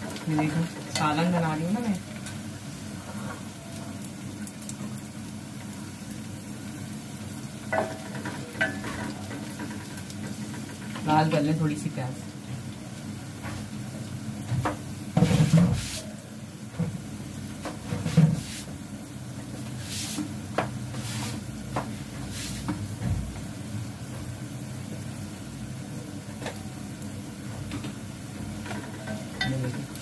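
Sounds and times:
onions frying in oil: 0.0s - 30.0s
kitchen utensils clattering: 7.7s - 9.9s, 28.6s - 30.0s.

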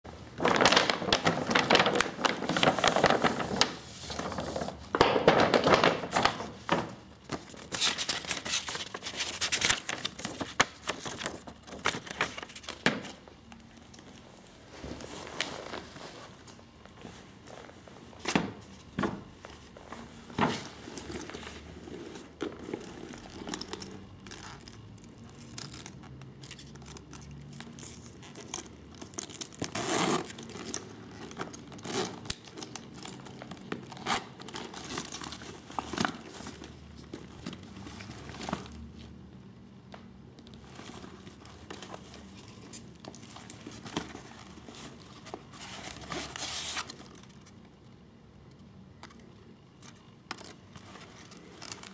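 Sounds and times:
handbag rustling and crinkling: 0.2s - 12.8s, 19.4s - 39.2s, 40.5s - 47.4s.

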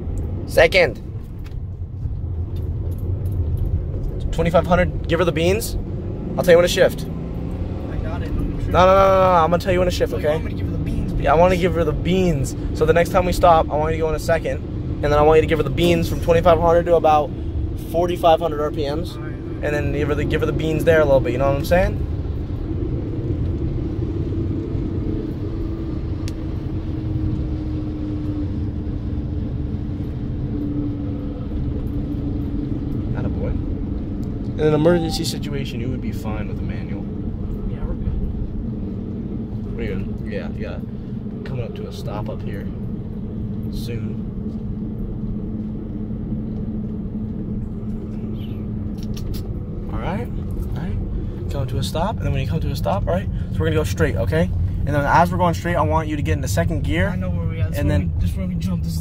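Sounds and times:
car engine and road noise drone: 0.0s - 59.0s
held tone sinking in pitch: 34.8s - 35.6s.

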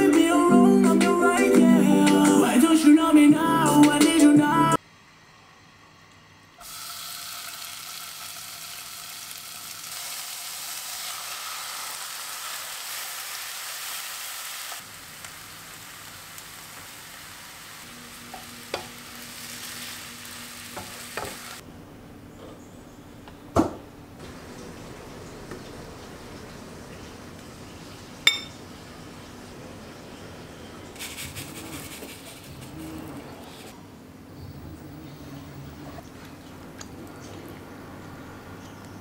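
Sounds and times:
meat sizzling in frying pan: 6.6s - 21.6s.

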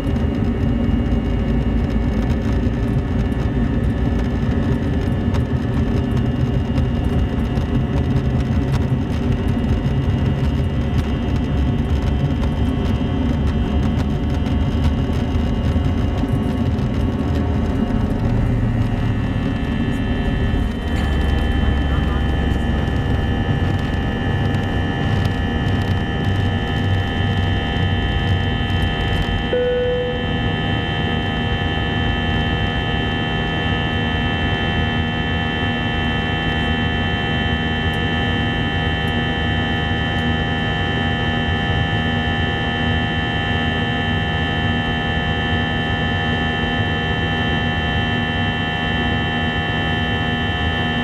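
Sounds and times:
low rumble: 0.0s - 33.2s
jet engine buzzsaw drone: 0.0s - 51.0s
brief tone: 29.5s - 31.8s.

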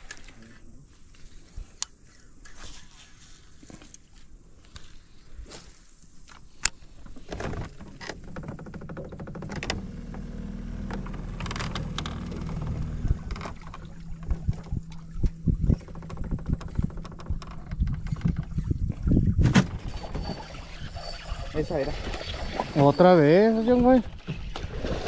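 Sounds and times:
boat motor humming: 7.0s - 25.0s.

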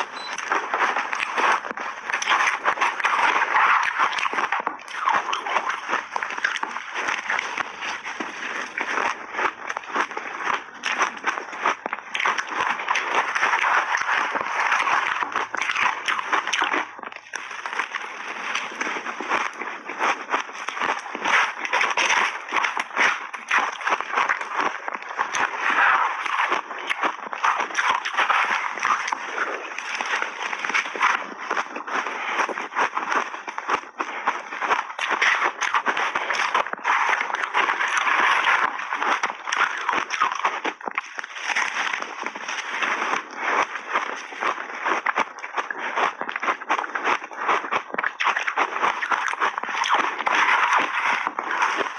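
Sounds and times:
shaved ice being chewed: 0.0s - 51.9s.

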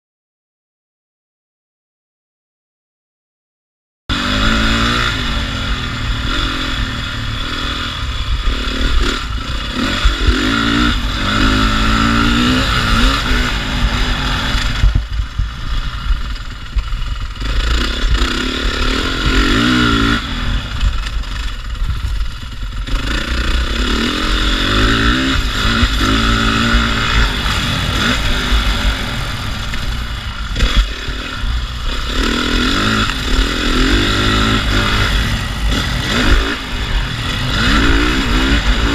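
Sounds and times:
dirt bike engine revving: 4.1s - 38.9s.

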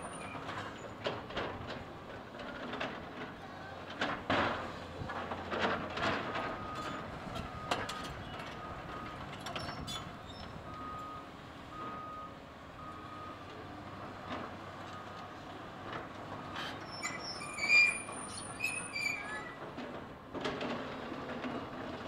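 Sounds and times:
excavator running: 0.0s - 22.0s.

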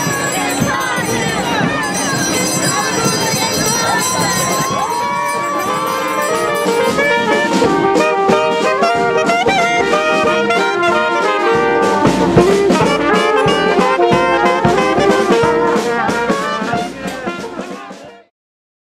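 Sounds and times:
sharp percussive hits: 0.0s - 7.9s
brass band playing: 0.0s - 18.3s.

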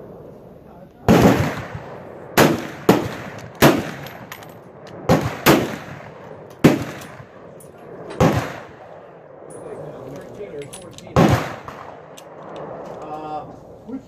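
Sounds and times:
gunshots echoing: 1.0s - 10.0s, 11.0s - 13.0s.

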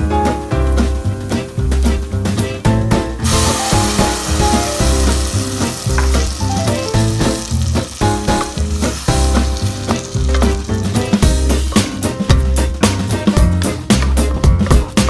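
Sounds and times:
background music with bass beat: 0.1s - 15.0s
tomato sizzling in hot oil: 0.4s - 13.3s
wooden spoon stirring: 3.3s - 11.2s.

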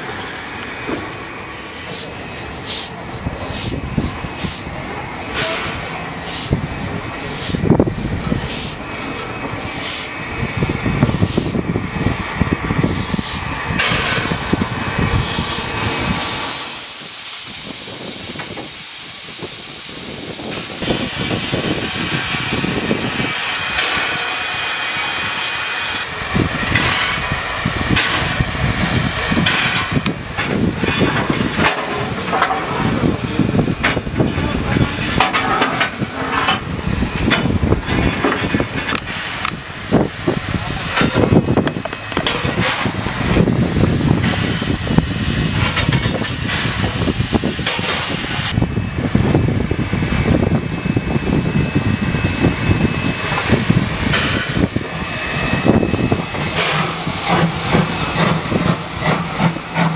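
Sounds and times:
engine knocks and clanks: 0.0s - 16.0s, 26.3s - 50.9s, 52.4s - 54.9s, 55.7s - 59.9s
steam locomotive hissing steam: 0.0s - 59.9s.

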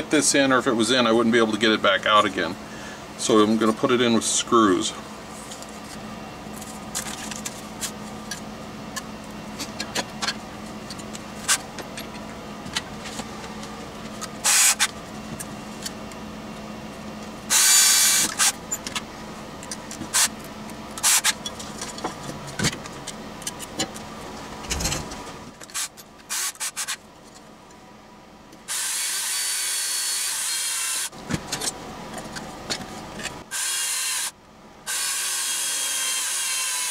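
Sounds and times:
steady low hum: 0.0s - 26.4s, 27.0s - 28.8s
cordless drill driving screws: 33.5s - 34.3s, 34.9s - 36.9s.

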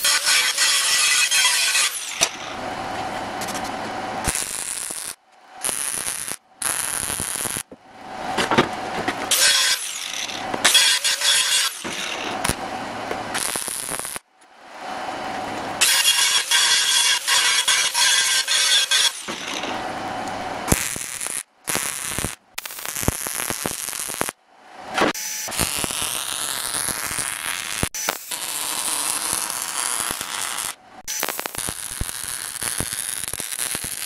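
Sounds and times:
angle grinder grinding steel: 0.0s - 2.8s, 9.1s - 14.2s, 15.8s - 21.4s, 25.5s - 34.0s.

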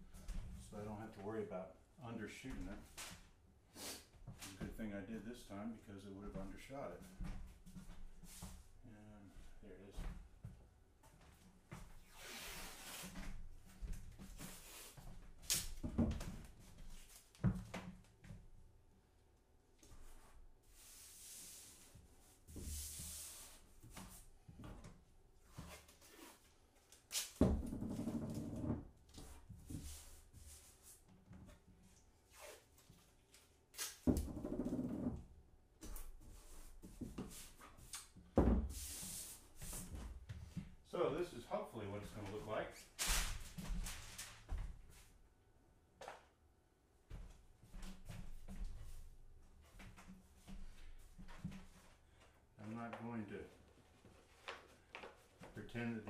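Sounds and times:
paper and tape handling scuffs: 25.6s - 27.4s, 32.3s - 34.1s, 42.9s - 44.5s
tape ripping off roll: 27.0s - 27.4s, 33.7s - 34.1s, 43.0s - 44.3s.

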